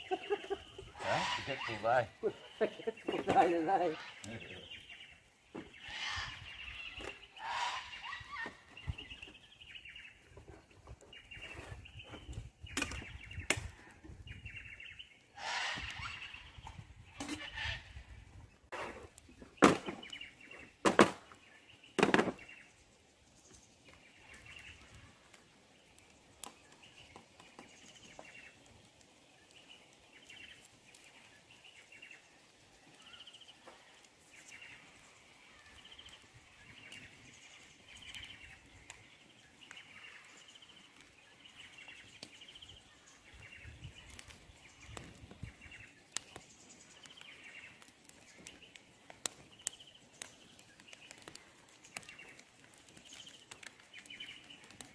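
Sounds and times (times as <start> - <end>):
faint bird calls: 0.0 - 19.2, 23.9 - 54.9.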